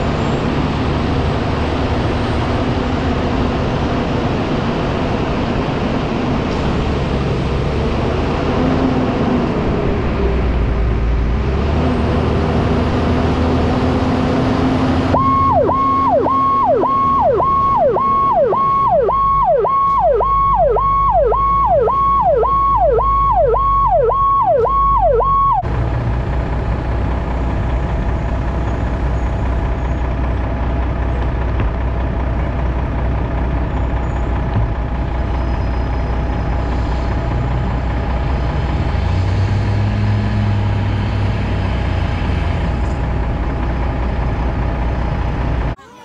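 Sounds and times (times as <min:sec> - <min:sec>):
road noise: 0:00.0 - 0:46.0
truck engine drone: 0:00.0 - 0:46.0
fire engine siren sweeping: 0:14.6 - 0:25.7.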